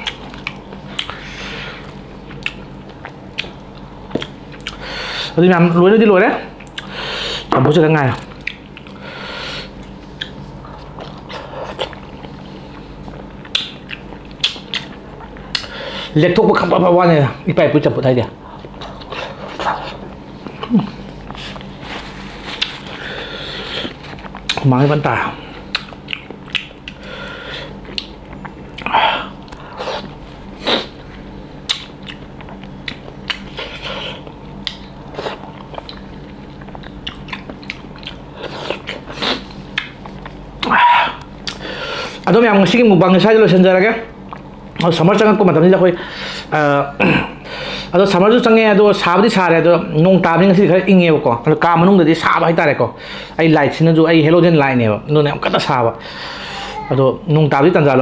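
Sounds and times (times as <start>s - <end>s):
wet munching: 0.0s - 4.9s, 8.1s - 9.0s, 9.6s - 15.8s, 18.5s - 24.7s, 25.4s - 42.3s
man chewing food: 0.0s - 5.4s, 6.5s - 16.2s, 18.3s - 42.3s, 44.1s - 45.0s
low steady hum: 0.0s - 58.0s.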